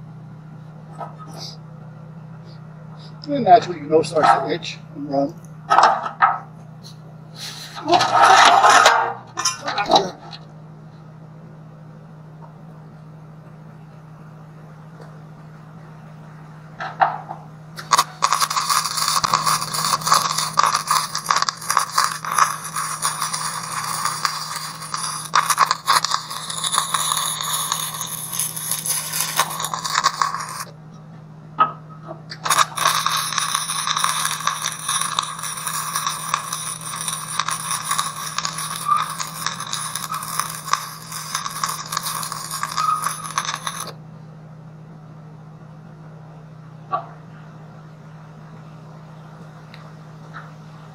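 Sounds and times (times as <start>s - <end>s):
steady low hum: 0.0s - 50.9s
welding arc crackling: 17.8s - 30.8s, 32.3s - 44.0s.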